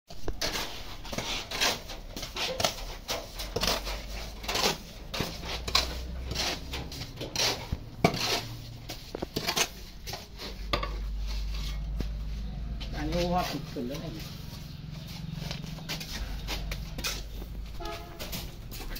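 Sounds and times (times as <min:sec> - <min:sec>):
metal tools scraping wet mortar: 0:00.1 - 0:18.9.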